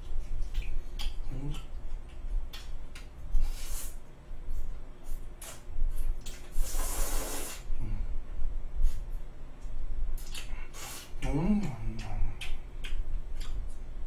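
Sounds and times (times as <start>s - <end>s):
person slurping spaghetti: 6.3s - 7.7s.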